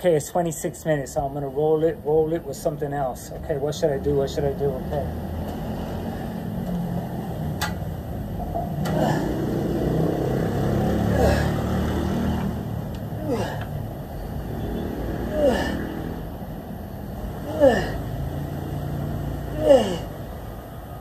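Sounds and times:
city traffic rumble: 0:00.0 - 0:21.0
man grunting: 0:08.8 - 0:12.1, 0:13.1 - 0:13.8, 0:15.2 - 0:16.2, 0:17.4 - 0:18.2, 0:19.5 - 0:20.2.

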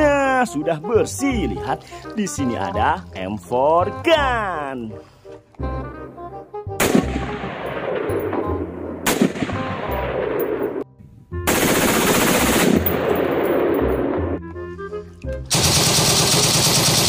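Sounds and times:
rifle rapid fire: 0:06.8 - 0:10.8, 0:11.5 - 0:14.3, 0:15.5 - 0:17.0.

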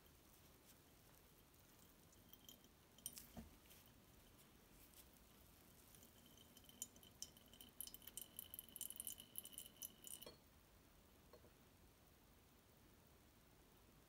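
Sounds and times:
oil trickling into glass jug: 0:01.4 - 0:10.4.

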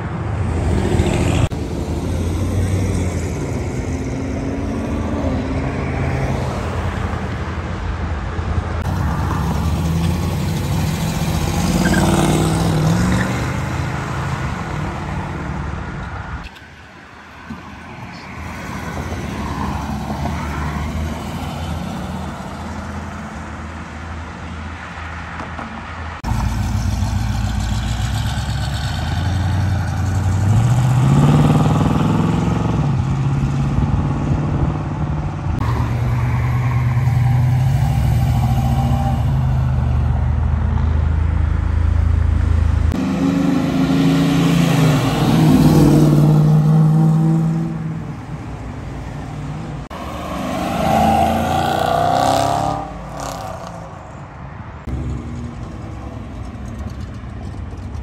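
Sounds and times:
cars accelerating hard: 0:08.8 - 0:15.8, 0:26.2 - 0:39.9, 0:42.9 - 0:48.2, 0:49.8 - 0:54.0.

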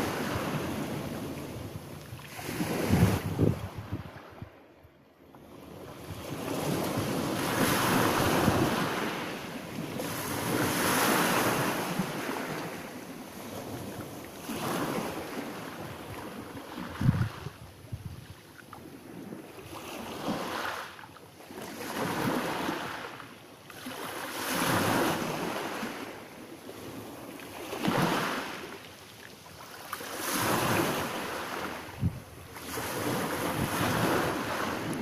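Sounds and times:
waves washing onto pebble beach: 0:06.3 - 0:15.8, 0:26.9 - 0:28.7.

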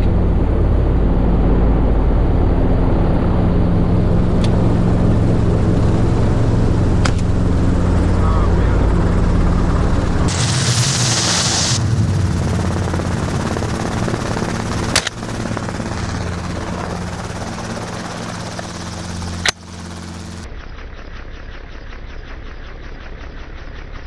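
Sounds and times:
helicopter engine and rotor: 0:00.0 - 0:24.0
burst of hiss: 0:10.3 - 0:11.8.

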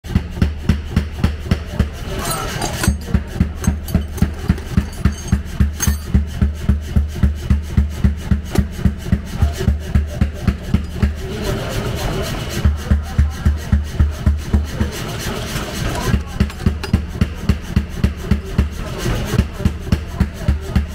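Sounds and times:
heavy hammer blows on metal: 0:01.7 - 0:06.4
rasping noise: 0:02.0 - 0:06.1.

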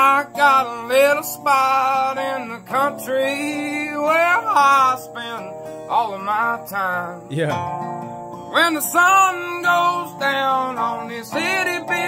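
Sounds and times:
man singing: 0:00.0 - 0:05.4, 0:08.6 - 0:12.0
resonator guitar: 0:00.0 - 0:12.0.

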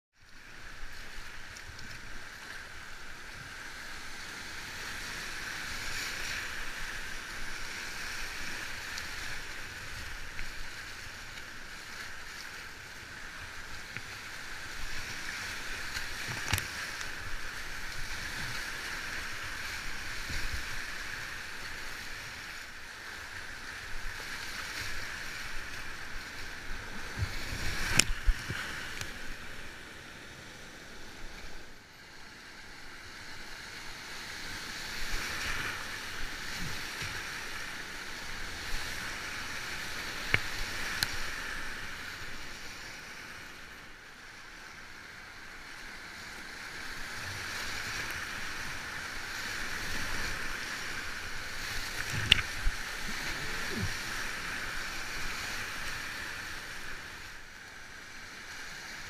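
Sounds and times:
paddle splashes: 0:00.4 - 0:31.7, 0:34.4 - 0:57.4
whitewater rushing: 0:46.5 - 0:59.0.

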